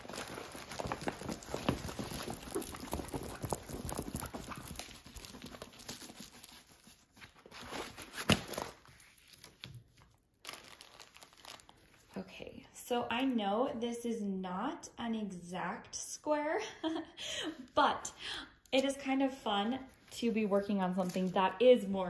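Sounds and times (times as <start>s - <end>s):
plastic film and paper rustling: 0.0s - 12.2s, 19.8s - 22.0s.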